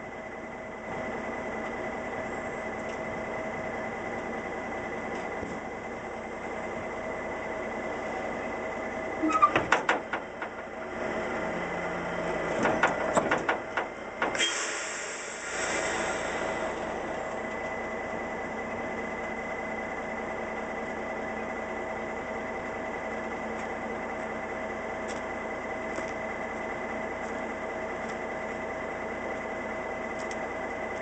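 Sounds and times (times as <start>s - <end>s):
diesel truck engine idling: 0.0s - 31.0s
brief hiss: 14.4s - 16.6s.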